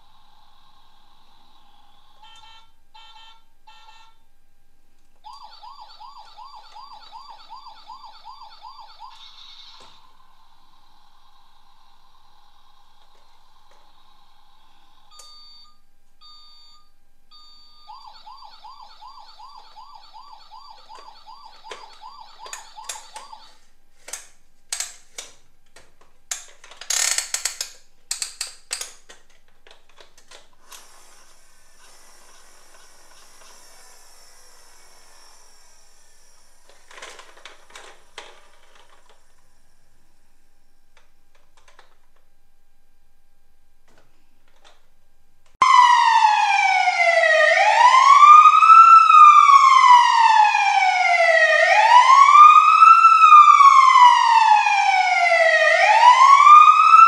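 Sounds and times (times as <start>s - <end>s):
toy electronic siren: 0.5s - 4.2s, 5.2s - 15.8s, 17.4s - 23.7s, 45.6s - 57.0s
plastic toys clattering in a box: 36.7s - 39.2s.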